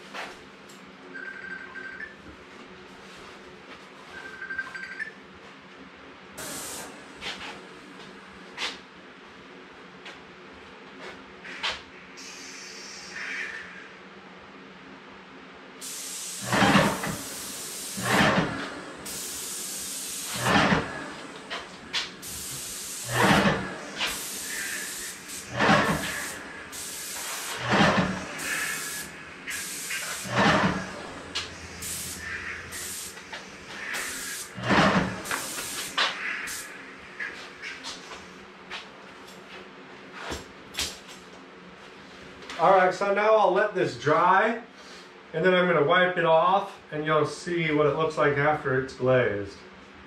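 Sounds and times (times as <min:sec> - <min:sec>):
spray gun hissing: 0:06.4 - 0:07.4, 0:12.2 - 0:13.3, 0:15.8 - 0:37.8.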